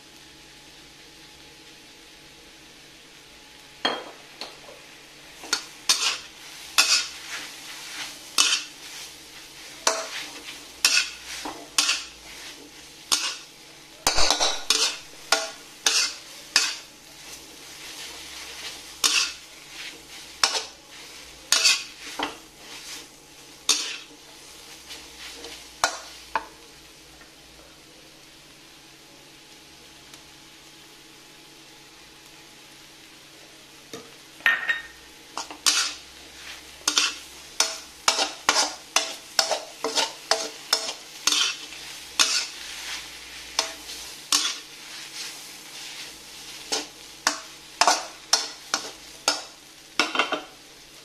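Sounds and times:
faint sizzle: 0.0 - 51.0
metal spatula scraping a wok: 5.4 - 24.2, 35.4 - 49.5.

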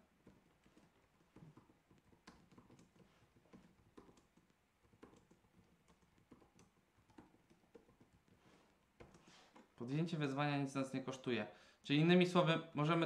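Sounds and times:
faint keyboard typing: 0.0 - 10.3.

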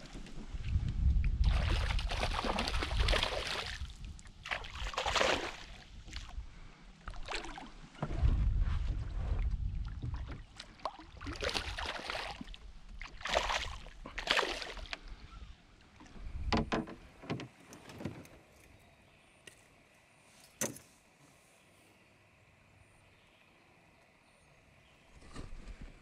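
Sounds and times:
fish splashing at the surface: 13.2 - 14.9
dull knocks: 16.5 - 17.5.

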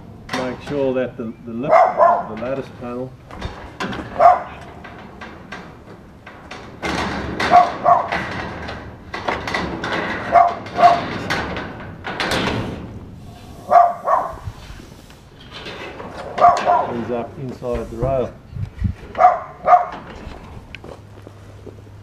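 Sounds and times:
metal rail scraping and knocking: 0.3 - 20.6
dog barking: 1.7 - 2.3, 4.2 - 4.6, 7.5 - 8.1, 10.3 - 11.0, 13.7 - 14.4, 16.4 - 16.9, 19.2 - 20.0.

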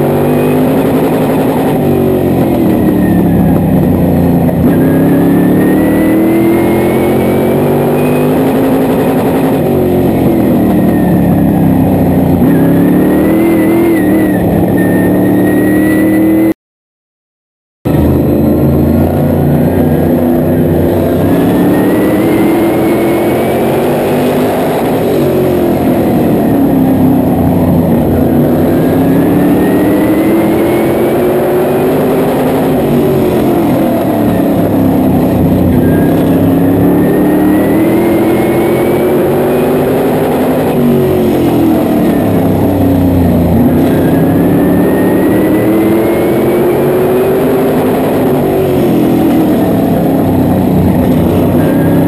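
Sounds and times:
race car engine revving: 0.0 - 16.5, 17.9 - 52.0
faint whine: 17.9 - 52.0.

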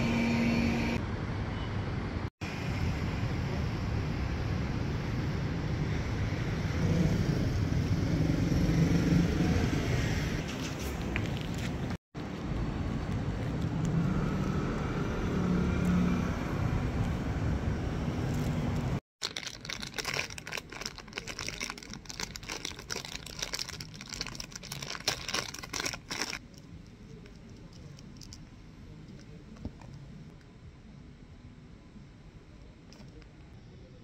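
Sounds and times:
road traffic noise: 0.0 - 19.0
plastic packaging crinkling: 19.2 - 28.5.

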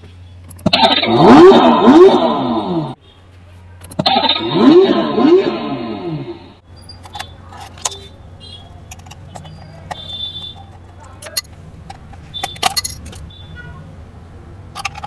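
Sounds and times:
screwdriver clicking and scraping: 6.9 - 8.1, 8.8 - 13.3, 14.8 - 15.0.

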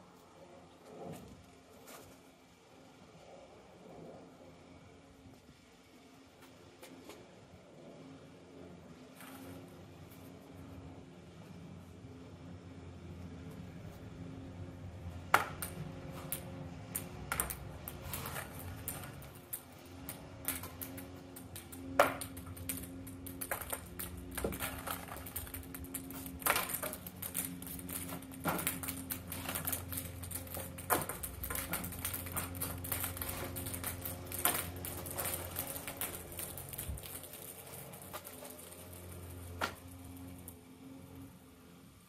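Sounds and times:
balls bouncing off wall and ground: 15.0 - 40.6.

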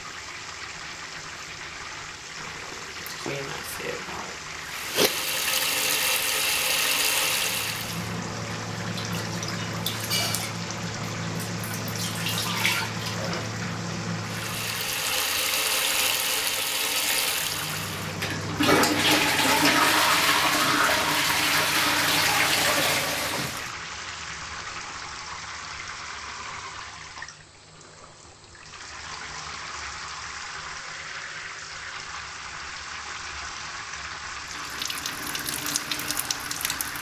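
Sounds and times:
water running: 0.0 - 23.8, 34.4 - 37.0
toilet flushing: 0.0 - 37.0
low steady hum: 7.7 - 14.9.

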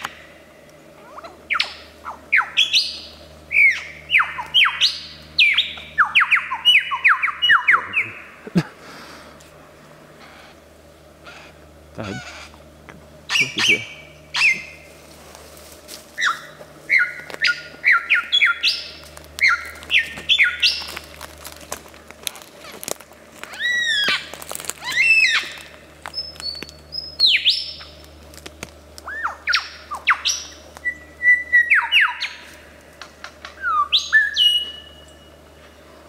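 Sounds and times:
lyrebird singing varied calls: 1.0 - 8.4, 11.2 - 12.7, 13.3 - 14.9, 16.2 - 21.2, 23.4 - 28.1, 29.0 - 32.6, 33.2 - 35.3.

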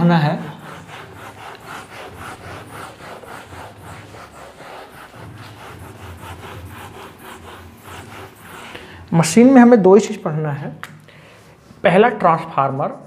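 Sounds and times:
eraser rubbing on whiteboard: 0.0 - 10.2.

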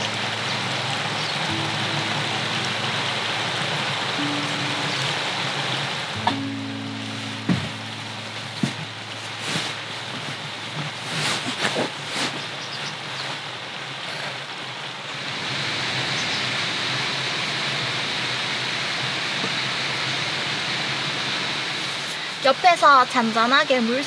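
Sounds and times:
stream rushing: 0.0 - 24.0.

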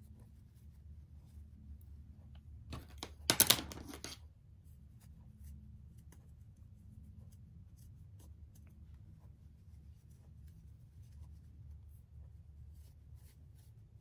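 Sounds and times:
low steady hum: 0.0 - 14.0
clicks and handling noise: 2.7 - 4.2.

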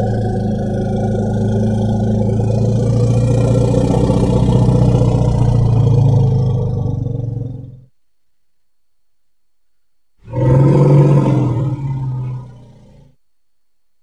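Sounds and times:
elephant rumbling: 0.0 - 7.9, 10.2 - 13.2.

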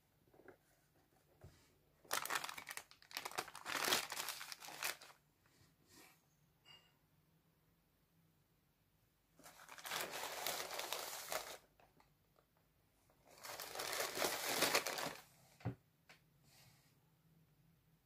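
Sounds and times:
plastic bags crinkling: 2.0 - 5.2, 9.4 - 11.9, 13.3 - 15.3.

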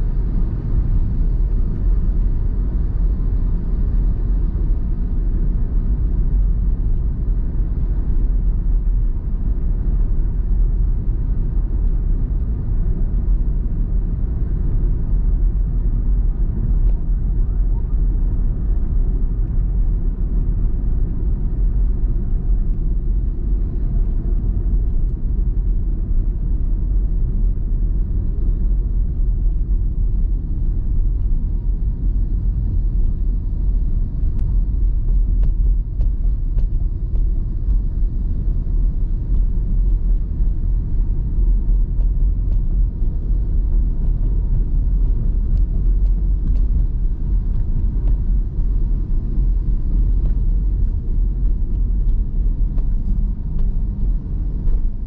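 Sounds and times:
car driving at speed: 0.0 - 55.0.

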